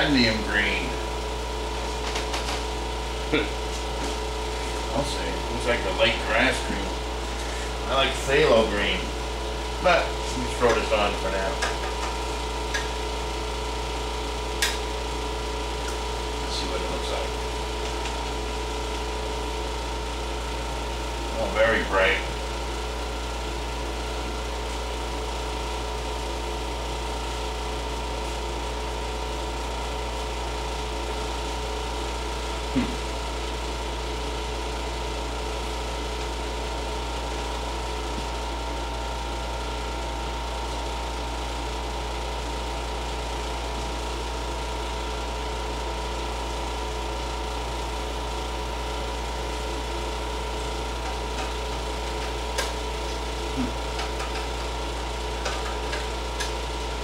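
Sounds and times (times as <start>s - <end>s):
air conditioner humming: 0.0s - 57.0s.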